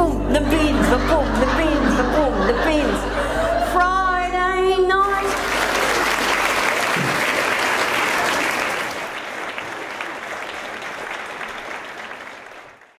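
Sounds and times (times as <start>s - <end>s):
audience applause: 5.1s - 13.0s.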